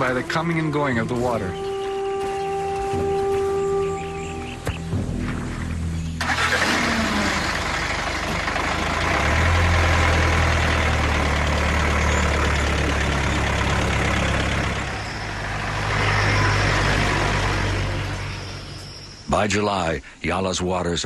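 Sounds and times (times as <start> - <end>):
jeep engine running: 0.0 - 20.0.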